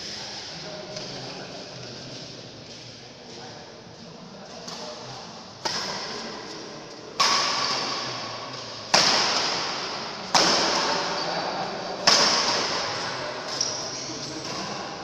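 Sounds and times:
rackets hitting shuttlecock: 5.6 - 11.2, 12.0 - 14.9.

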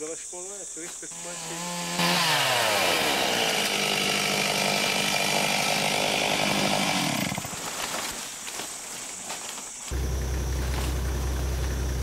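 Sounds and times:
chainsaw cutting wood: 1.1 - 7.6.

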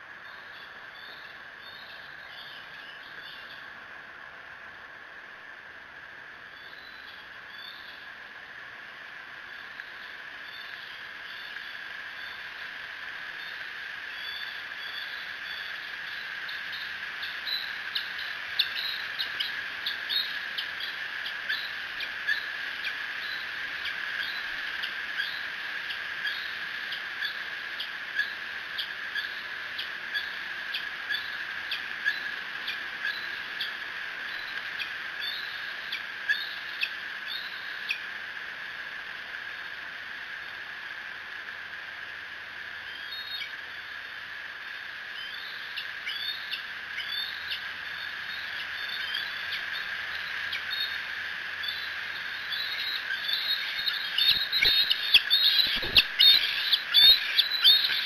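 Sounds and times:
steady high hum: 44.8 - 58.0
eaglets squealing begging calls: 52.5 - 58.0.

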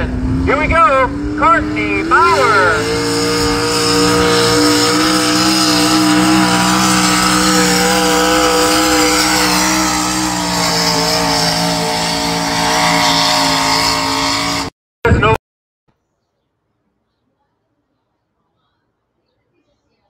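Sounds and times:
tractor engine at high revs: 0.0 - 14.7.

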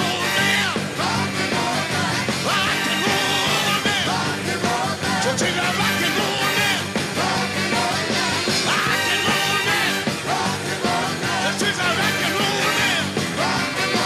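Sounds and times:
man singing into a microphone: 0.0 - 1.0, 2.4 - 6.9, 8.5 - 10.1, 11.2 - 13.2
live rock band playing: 0.0 - 14.0.

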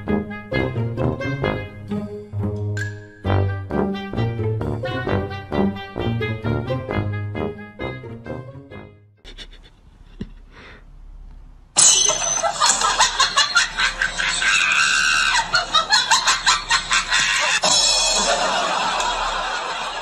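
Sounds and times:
person screaming: 14.4 - 15.5.

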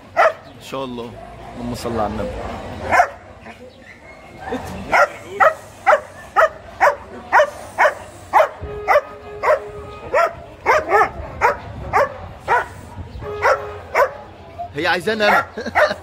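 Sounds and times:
dog barking: 0.1 - 0.5, 2.9 - 3.5, 4.9 - 14.3, 15.3 - 16.0.

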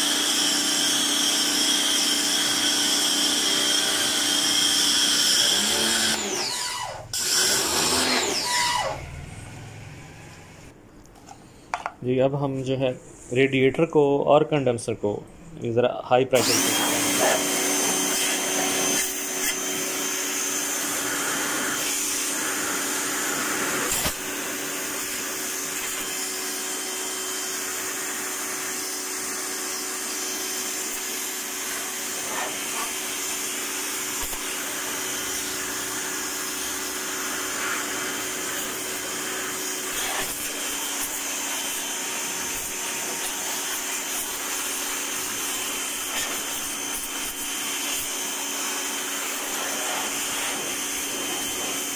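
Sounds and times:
pressure washer motor humming: 0.0 - 10.7, 16.4 - 51.9
water jet hissing: 49.1 - 51.9.

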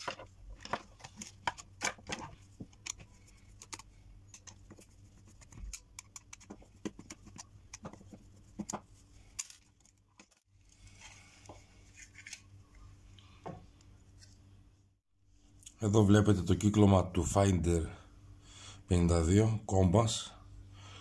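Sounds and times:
plastic parts clicking and tapping: 0.0 - 4.8, 5.4 - 10.4.

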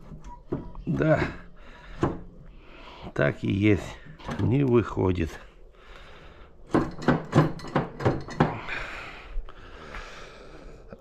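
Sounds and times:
metal knocks and clanks: 6.7 - 8.7.

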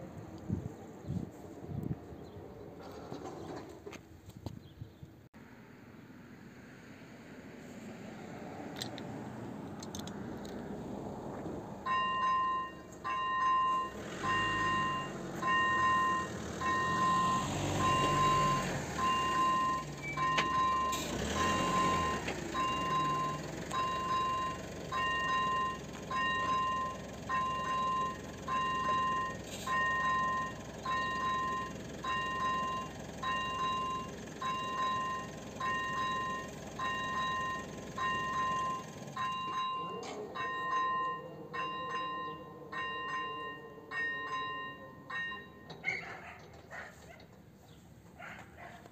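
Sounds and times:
level crossing warning bell: 11.8 - 46.4.

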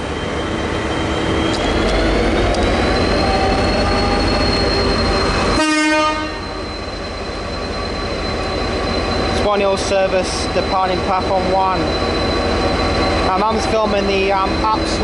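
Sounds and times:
diesel locomotive engine under load: 0.0 - 15.0
thin high whine: 0.4 - 15.0
train horn toot: 5.5 - 6.5.

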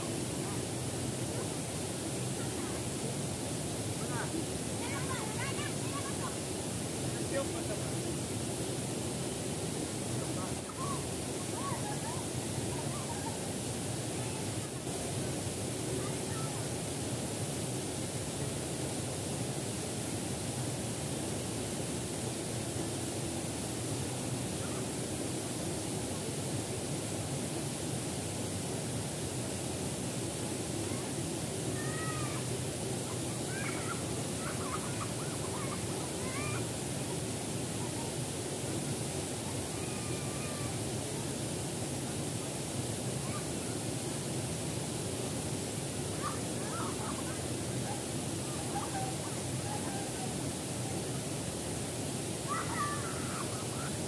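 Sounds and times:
stream cascading over boulders: 0.0 - 54.0
water rushing over rocks: 0.0 - 54.0
faint high wavering calls: 10.6 - 13.5, 33.1 - 36.6, 46.1 - 51.2, 52.5 - 54.0.

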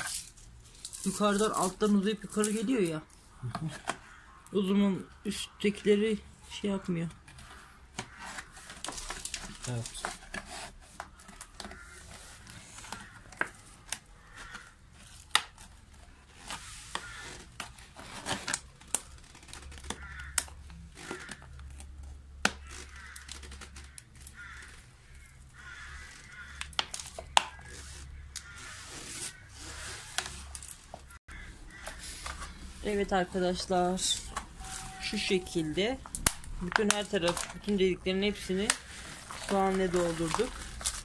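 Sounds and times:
plastic bottle crinkling: 8.1 - 28.6, 29.2 - 41.0.

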